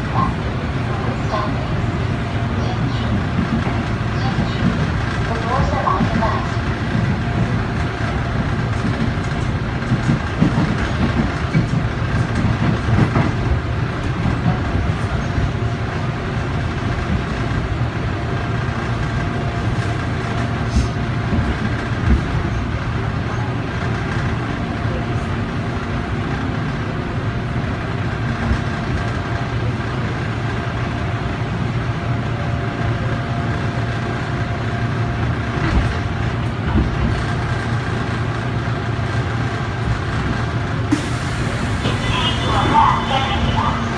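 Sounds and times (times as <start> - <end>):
train wheels rumbling: 0.0 - 43.9.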